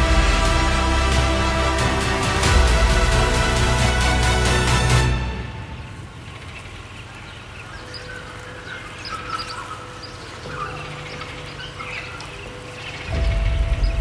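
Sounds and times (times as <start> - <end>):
birds chirping: 5.4 - 14.0.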